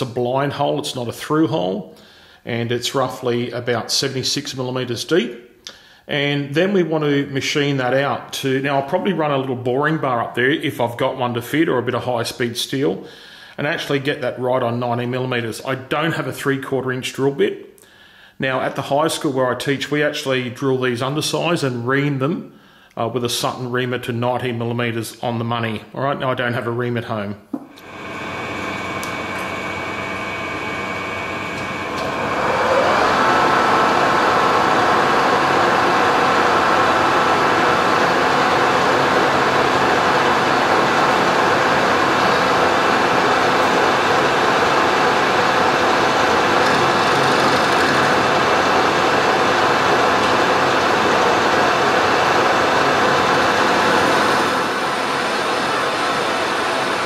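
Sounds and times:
lathe tool cutting steel: 27.8s - 57.0s
metal lathe whining: 27.8s - 57.0s.

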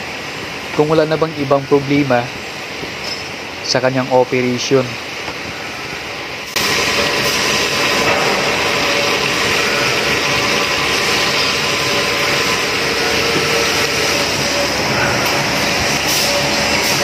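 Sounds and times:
coolant spraying: 6.5s - 17.0s
machine drilling: 6.6s - 17.0s.

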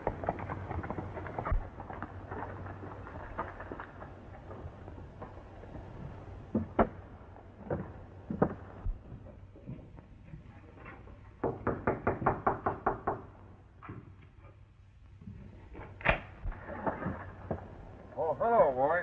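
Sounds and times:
knocking on wooden door: 11.4s - 13.3s.

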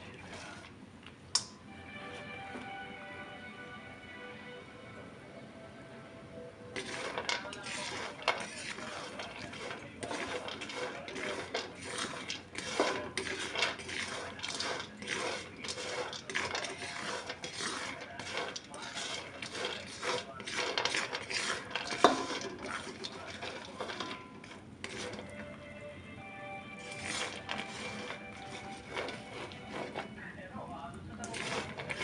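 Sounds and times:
spatula scraping a pan: 0.0s - 0.8s, 6.7s - 25.6s, 26.7s - 30.2s, 31.1s - 32.0s
nuts rattling in a pan: 6.8s - 25.4s, 26.8s - 30.1s, 31.2s - 32.0s.

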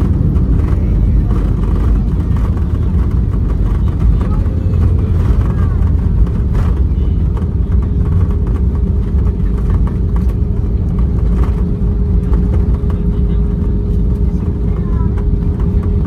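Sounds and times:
rumble of wheels and engines: 0.0s - 16.0s.

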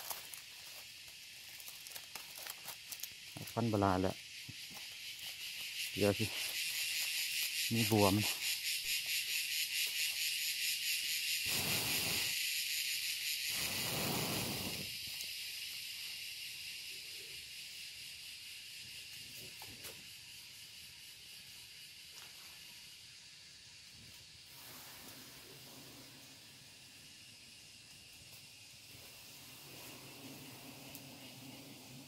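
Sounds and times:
high-pitched insect buzz: 0.0s - 32.0s
breathy rushes of noise: 13.5s - 15.0s.

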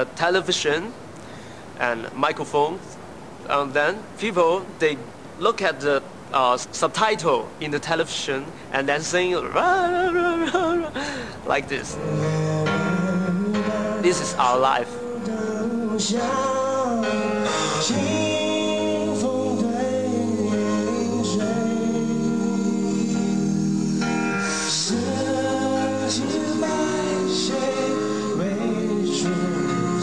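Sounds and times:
person singing a slow ballad: 9.6s - 30.0s
instrumental backing music: 11.9s - 30.0s.

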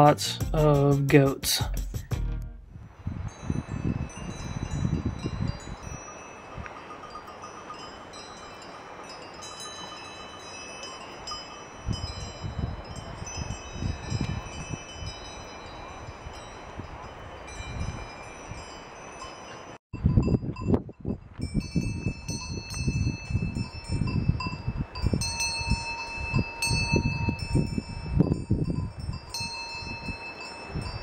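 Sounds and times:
wind rumble on microphone: 2.4s - 7.2s, 11.0s - 18.9s, 20.0s - 31.0s
goat bells tinkling: 3.3s - 20.8s, 21.4s - 31.0s.

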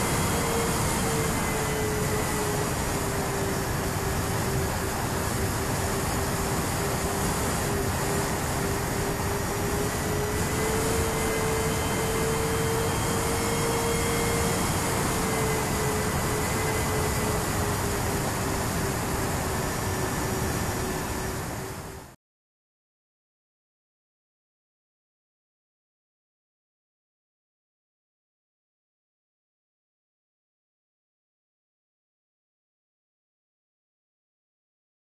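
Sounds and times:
airflow rush: 0.0s - 22.1s
model plane motors humming: 0.0s - 22.1s.

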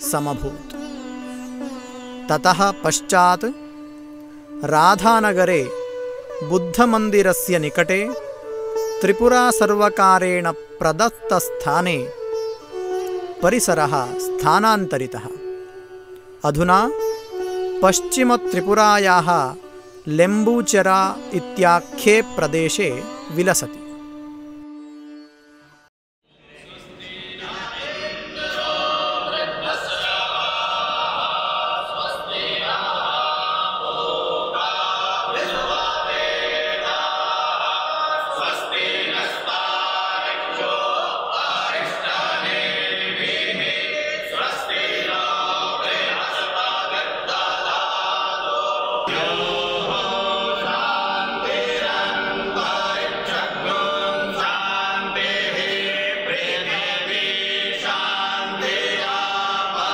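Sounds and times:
group singing a prayer: 26.3s - 59.9s.

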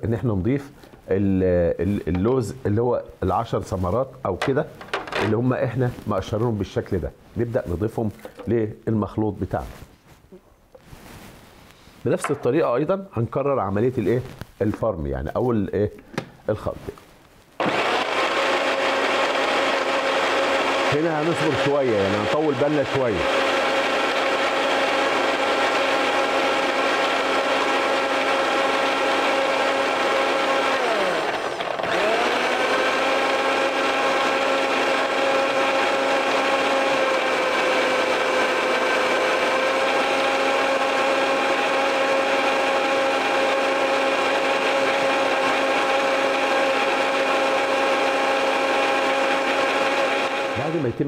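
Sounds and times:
blender grinding: 17.6s - 51.0s.

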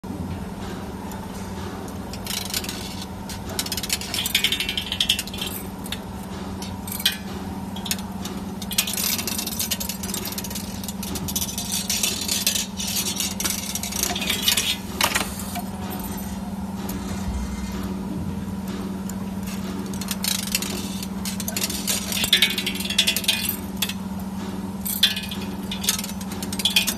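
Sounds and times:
machine hum: 0.1s - 26.9s
wire bending clicking and rattling: 1.1s - 18.0s, 18.6s - 26.9s.

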